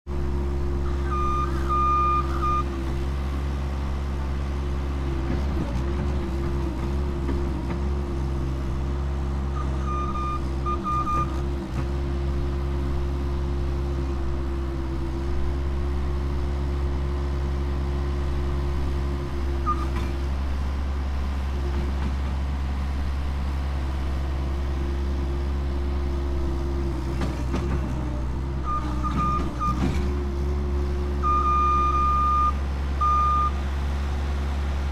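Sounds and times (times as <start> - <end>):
diesel engine running: 0.1 - 34.9
reversing alarm beeps: 1.0 - 2.7, 9.6 - 11.3, 28.7 - 29.8, 31.2 - 33.6.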